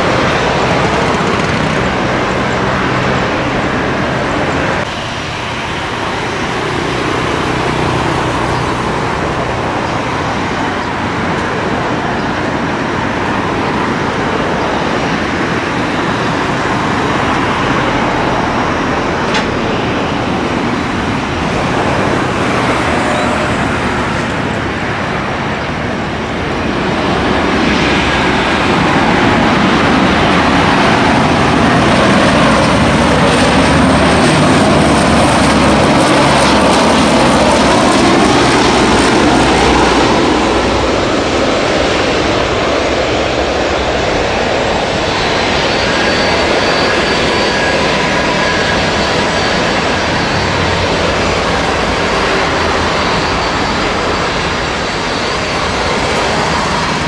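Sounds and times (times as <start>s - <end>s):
turboprop engines droning: 0.0s - 57.0s
high thin whine: 43.4s - 57.0s.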